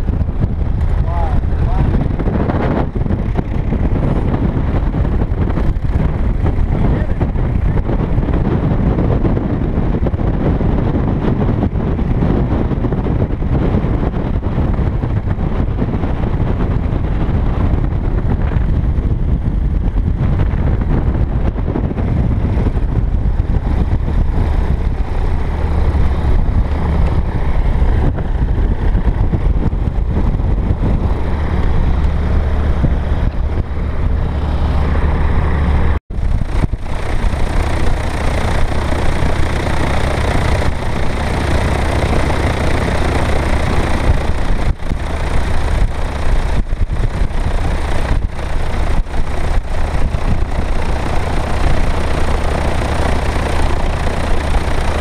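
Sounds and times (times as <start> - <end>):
light aircraft engine and propeller: 0.0 - 55.0
wind buffeting microphone: 0.0 - 55.0.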